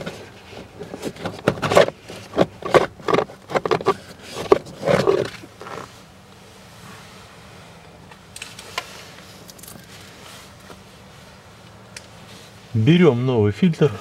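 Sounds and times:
air filter scraping against plastic housing: 0.0 - 6.0.

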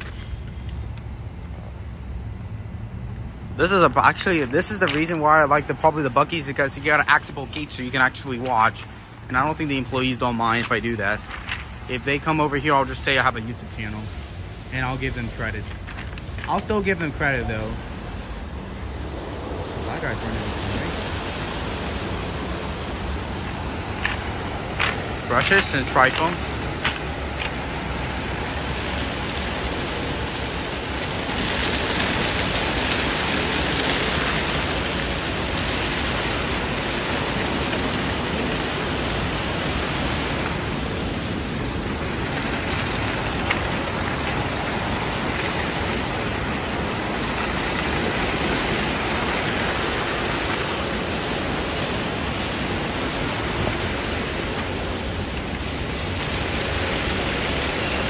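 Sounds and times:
car wash brushes and water spray: 0.0 - 1.6, 3.6 - 58.0.

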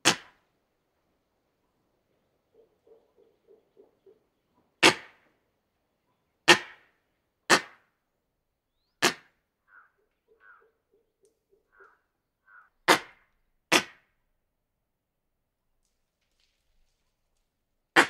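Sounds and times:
monkeys giving alarm barks: 2.5 - 5.1, 9.0 - 13.9
soft short monkey calls: 9.6 - 13.0.

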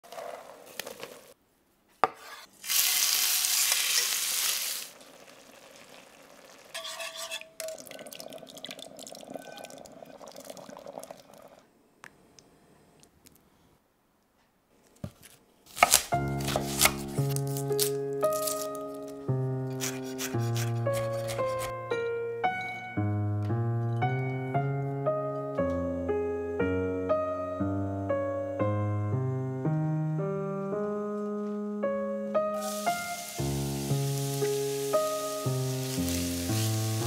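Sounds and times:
food sizzling in a pan: 2.6 - 8.1, 32.6 - 37.0
ladle stirring soup in a pot: 6.8 - 8.1
shallot skins rustling: 14.8 - 21.7, 32.6 - 37.0
gentle music with held notes: 16.2 - 37.0.

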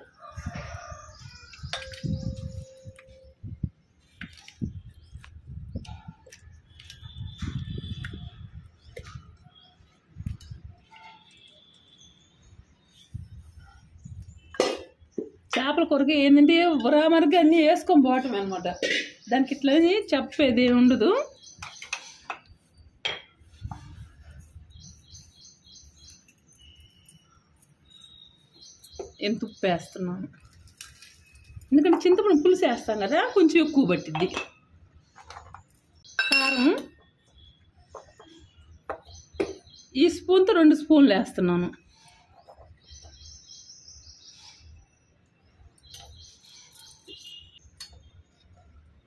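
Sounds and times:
small birds chirping: 0.0 - 49.0
small bird chirping: 23.8 - 30.2, 41.9 - 48.5
steel kitchenware clink: 36.2 - 37.0.

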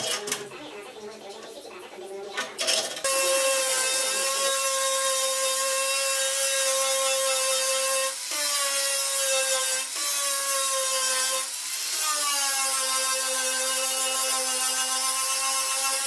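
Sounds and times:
angle grinder grinding metal: 2.5 - 16.0.

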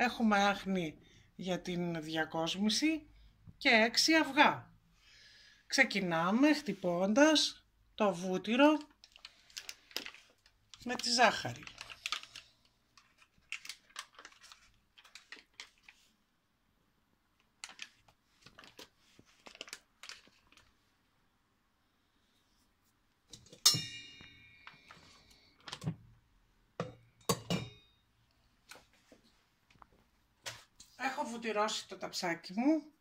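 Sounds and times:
paper wrapper crinkling: 8.7 - 16.2, 17.4 - 20.9
metal mixing bowl ringing: 23.6 - 24.5.

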